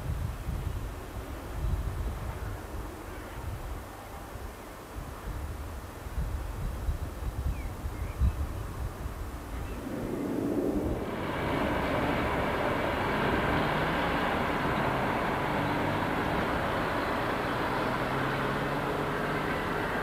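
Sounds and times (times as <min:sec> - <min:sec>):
passenger train running past: 0:08.8 - 0:20.0.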